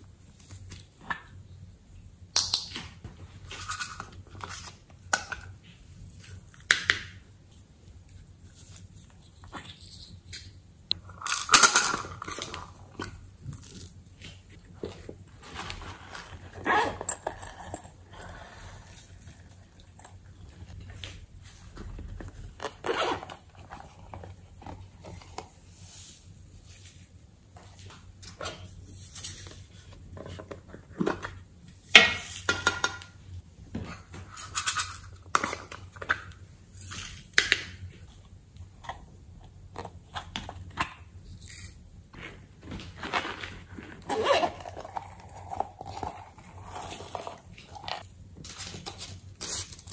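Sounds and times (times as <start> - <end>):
plastic containers clicking and rustling: 42.2 - 49.9.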